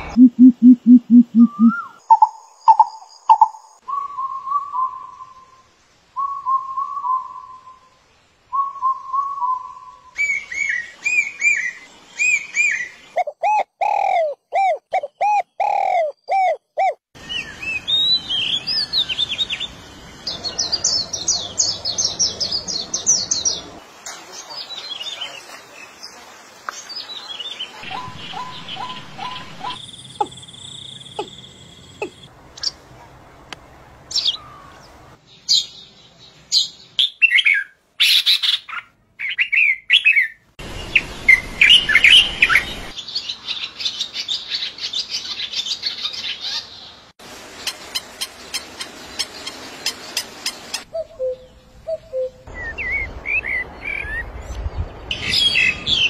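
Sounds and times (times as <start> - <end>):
birds singing and calling: 0.0 - 5.5, 8.6 - 32.8, 34.1 - 56.0.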